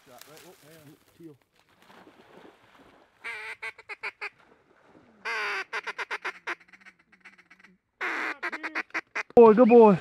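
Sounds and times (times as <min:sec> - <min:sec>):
duck quacking: 0:05.2 - 0:09.4.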